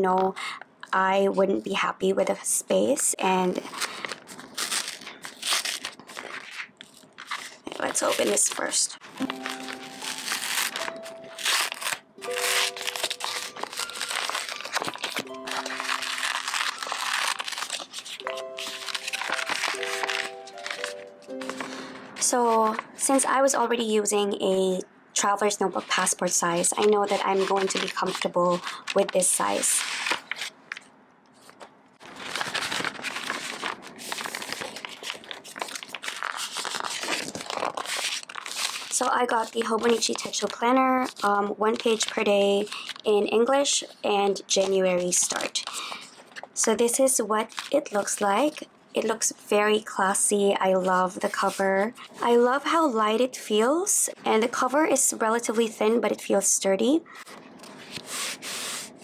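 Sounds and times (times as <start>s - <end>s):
paper packaging crinkling: 3.6s - 22.9s, 25.8s - 43.3s, 47.4s - 48.6s
plastic wrapping crackling: 3.6s - 22.9s, 26.0s - 43.2s, 47.4s - 48.6s
soft background music: 8.1s - 29.6s.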